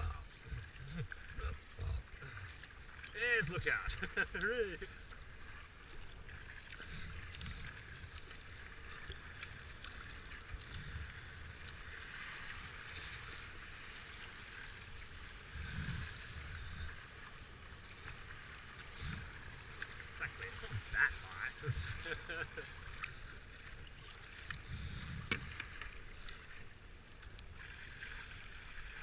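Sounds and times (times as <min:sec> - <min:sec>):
rapids rushing and hissing: 0:00.0 - 0:05.8, 0:18.4 - 0:22.6
paddle splashes: 0:00.0 - 0:29.0
wind rumble on microphone: 0:10.5 - 0:11.8, 0:15.4 - 0:17.0, 0:24.5 - 0:25.6.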